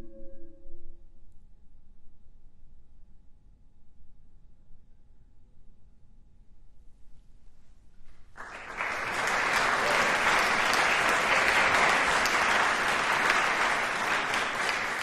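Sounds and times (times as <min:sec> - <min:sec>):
audience applause: 0:08.4 - 0:15.0.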